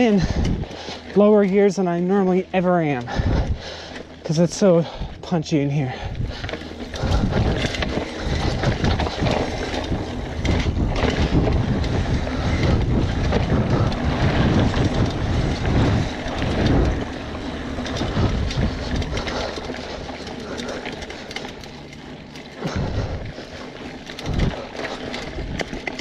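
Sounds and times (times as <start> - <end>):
wind buffeting microphone: 0.0 - 4.2, 4.8 - 26.0
bike knocks and rattles: 0.0 - 5.2, 5.9 - 26.0
tyre rumble on dirt: 6.1 - 26.0.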